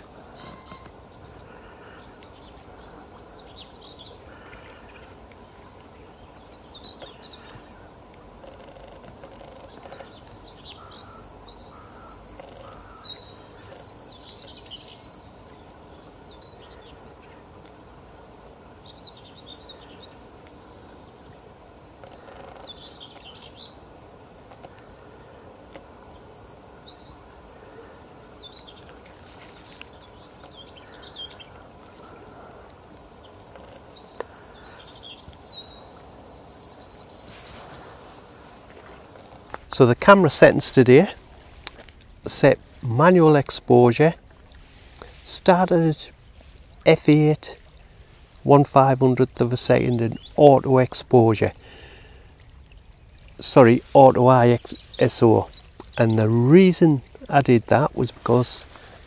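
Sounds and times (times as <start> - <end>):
steady background hiss: 0.0 - 59.0
bird chirps: 9.4 - 17.0, 25.8 - 32.1, 33.0 - 38.1, 54.5 - 56.6.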